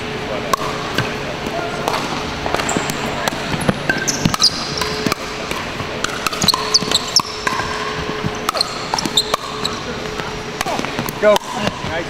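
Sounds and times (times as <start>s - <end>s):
sneaker squeaks on hardwood: 3.6s - 5.1s, 6.3s - 9.9s.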